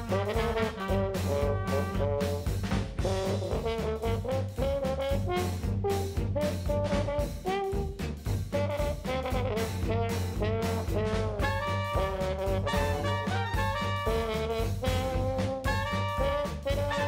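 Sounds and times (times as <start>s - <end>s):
swing jazz with brass lead: 0.0s - 17.0s.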